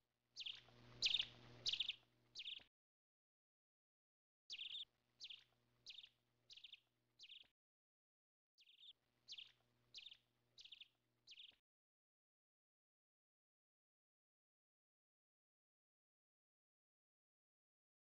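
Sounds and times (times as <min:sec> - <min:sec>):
faint steady hum: 0:00.4 - 0:02.4.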